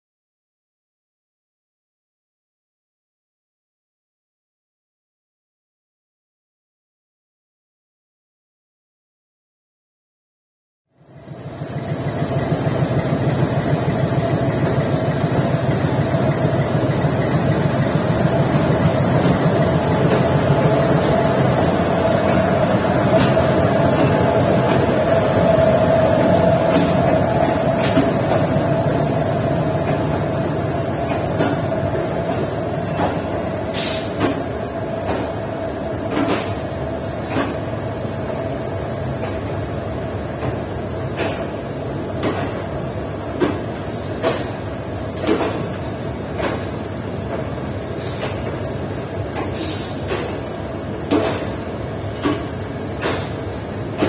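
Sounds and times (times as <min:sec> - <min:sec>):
electric locomotive rumbling: 0:11.0 - 0:54.0
train wheels knocking: 0:11.5 - 0:33.5, 0:43.3 - 0:47.5.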